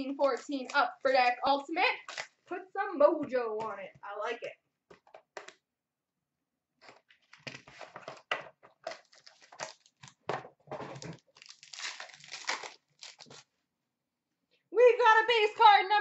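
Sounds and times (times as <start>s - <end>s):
packaging crinkling and rustling: 6.8s - 13.5s.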